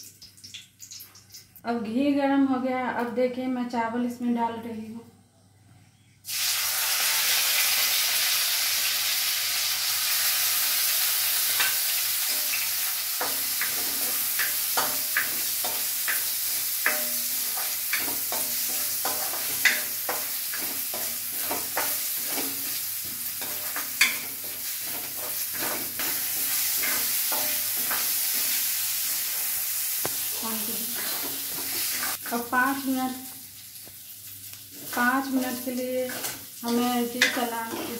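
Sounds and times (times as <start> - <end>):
rice sizzling in ghee: 6.2 - 37.9
spatula scraping pan: 13.2 - 32.2, 34.8 - 37.9.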